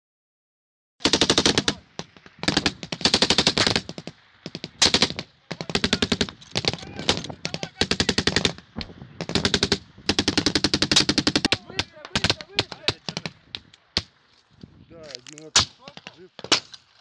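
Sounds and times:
automatic gunfire bursts: 1.0 - 1.8, 2.4 - 8.6, 9.2 - 13.4.

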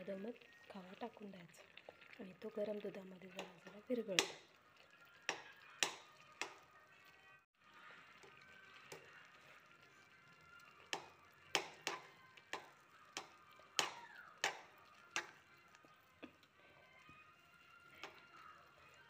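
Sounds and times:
spoon scraping metal pan: 3.3 - 4.5, 10.8 - 15.4.

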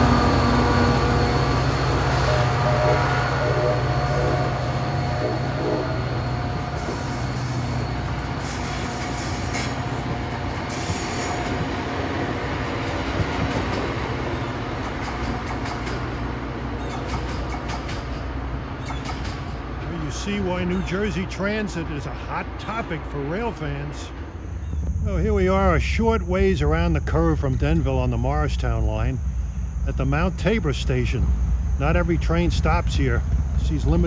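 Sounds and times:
train wheels squealing on rails: 0.0 - 25.2
diesel locomotive engine: 0.0 - 34.0.

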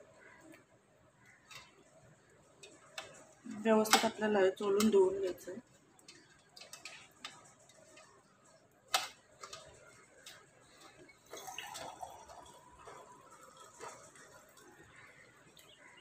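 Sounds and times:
water dripping and trickling: 0.0 - 16.0.

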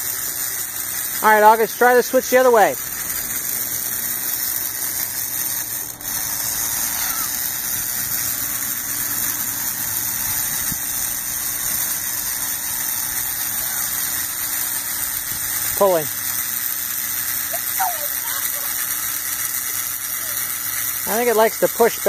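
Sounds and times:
motor humming and hissing: 0.0 - 22.0.

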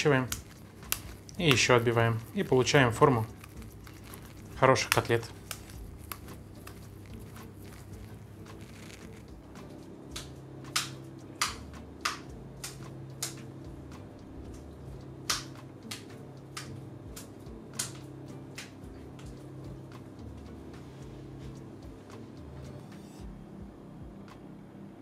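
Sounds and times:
meat slapped between palms: 0.2 - 13.6, 14.5 - 20.0.

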